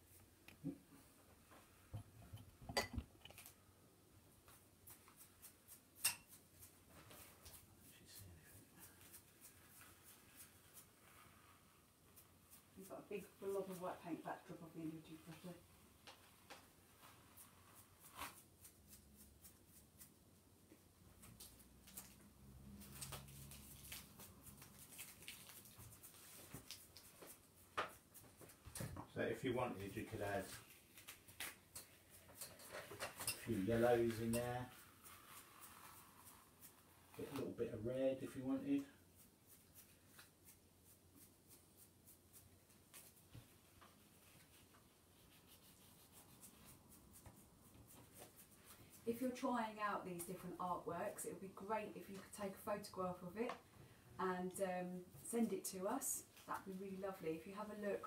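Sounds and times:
bristles scratching paint: 4.8 - 14.6, 15.3 - 20.2, 29.8 - 37.5, 38.4 - 49.3.

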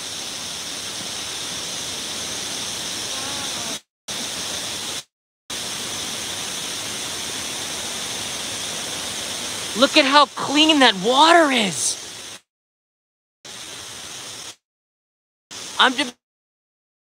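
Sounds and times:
stream rushing over rocks: 1.0 - 12.2.

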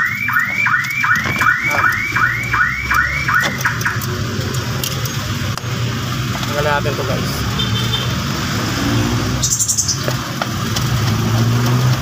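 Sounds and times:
car alarm chirping: 0.0 - 4.1, 9.4 - 10.1.

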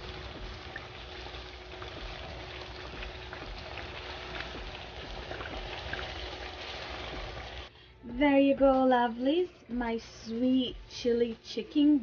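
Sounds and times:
chicken wings sizzling in a pan: 0.0 - 7.7.

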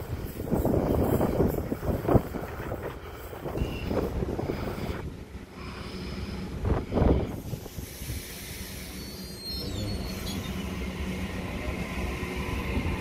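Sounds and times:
electric train rumbling: 0.0 - 13.0
wheel squeal: 8.8 - 10.8.

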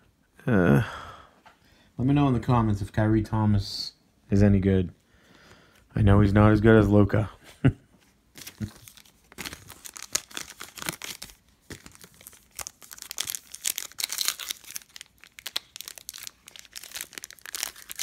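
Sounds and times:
foil pack crinkling and tearing: 8.4 - 18.0.

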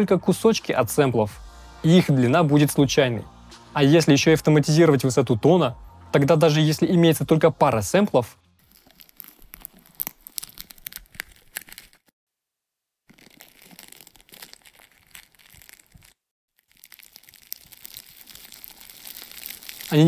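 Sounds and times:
aluminium foil crinkling: 8.6 - 12.1, 13.1 - 20.0.

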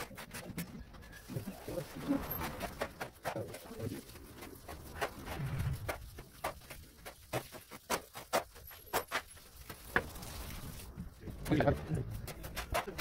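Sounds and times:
shovel scraping gritty mix: 0.0 - 13.0.

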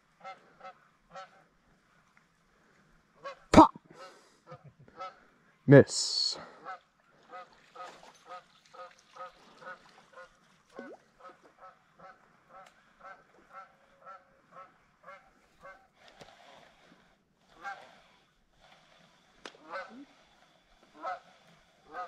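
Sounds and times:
geese honking: 20.9 - 22.0.

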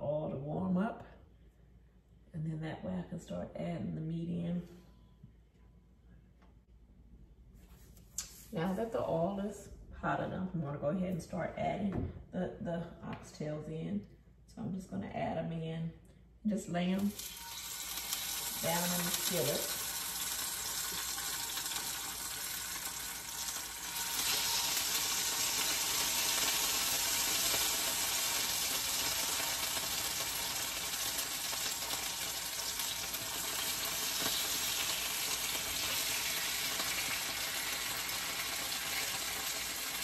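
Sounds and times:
meat sizzling in a skillet: 17.0 - 40.0
grease popping: 17.1 - 40.0.

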